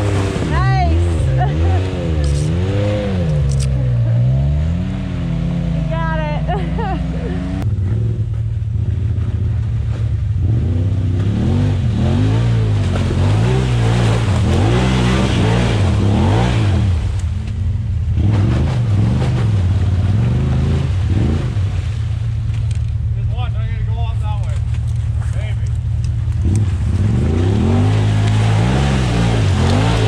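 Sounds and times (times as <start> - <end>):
utility vehicle engine revving: 0.0 - 23.6, 24.4 - 30.0
spinning tyres throwing mud: 8.1 - 23.0, 24.4 - 30.0.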